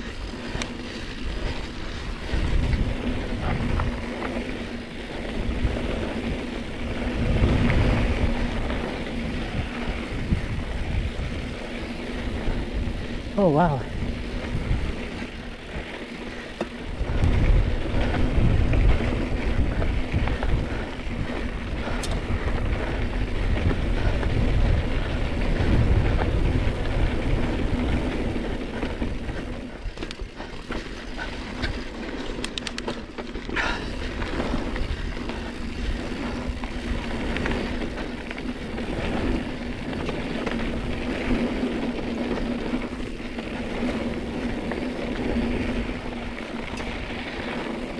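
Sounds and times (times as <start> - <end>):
bike rattling: 0.0 - 47.9
bike tyre noise: 0.0 - 47.9
wind rumble on microphone: 0.0 - 47.9
rapid clicks: 31.5 - 33.6.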